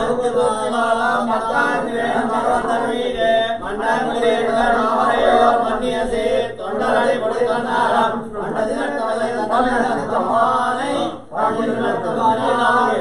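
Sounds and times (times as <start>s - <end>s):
men chanting: 0.0s - 13.0s.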